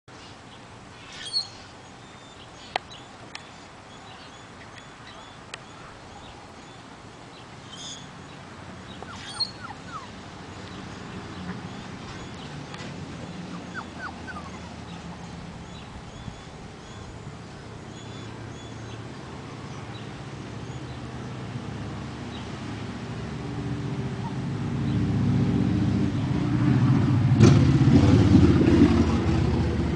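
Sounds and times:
small birds chirping: 0:00.2 - 0:21.4
puppy whimpering: 0:09.0 - 0:10.1, 0:13.5 - 0:15.0.

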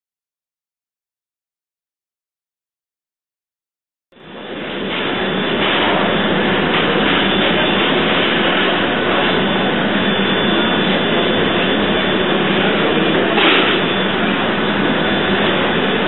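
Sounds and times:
steam engine running: 0:04.2 - 0:16.0.

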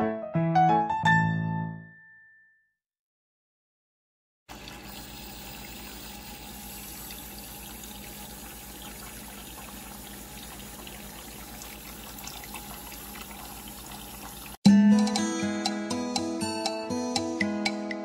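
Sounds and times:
tap water running into basin: 0:04.5 - 0:14.6.

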